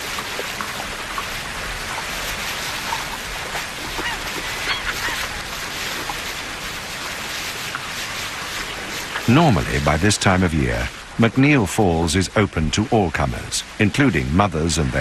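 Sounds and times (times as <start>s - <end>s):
river water rushing: 0.0s - 15.0s
bird calls: 2.7s - 5.7s.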